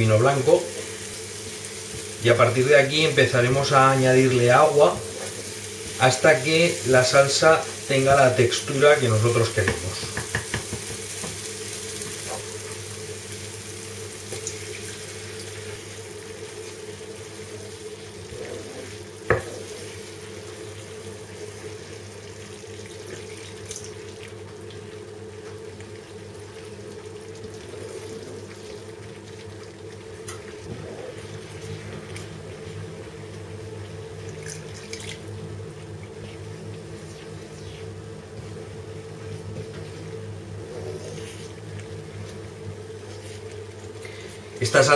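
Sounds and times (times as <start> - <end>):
sauce sizzling in a frying pan: 0.0 - 34.7
water pouring: 34.2 - 35.4.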